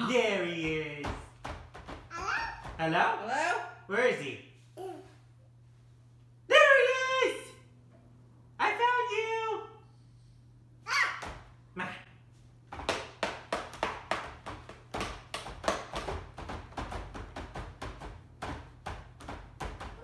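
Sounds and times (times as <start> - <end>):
irregular taps and knocks: 0.6 - 2.8, 12.7 - 20.0.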